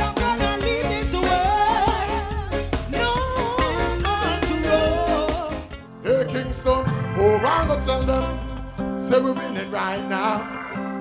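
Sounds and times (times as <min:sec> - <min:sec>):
woman singing with live band: 0:00.0 - 0:05.7
man singing with band: 0:03.0 - 0:10.9.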